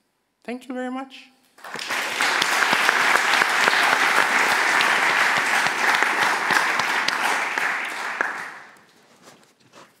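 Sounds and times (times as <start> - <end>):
audience applauding: 1.6 - 8.8.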